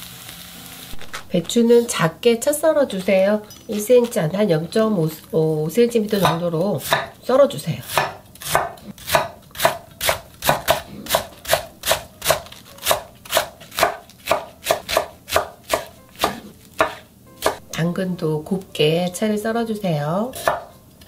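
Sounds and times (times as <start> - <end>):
knife chopping on wooden board: 6.2 - 7.1, 7.8 - 17.6, 20.3 - 20.7.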